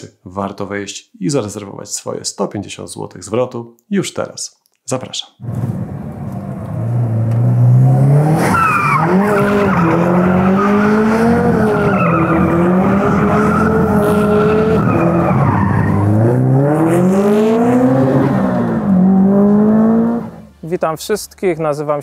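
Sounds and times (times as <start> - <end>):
car engine revving high: 5.4 - 20.6
tyres squealing: 8.4 - 16.5.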